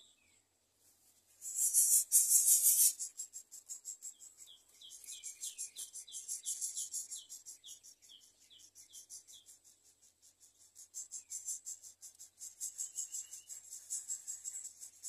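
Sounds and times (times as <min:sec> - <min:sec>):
high-pitched insect-like pulsing: 0:01.4 - 0:04.0.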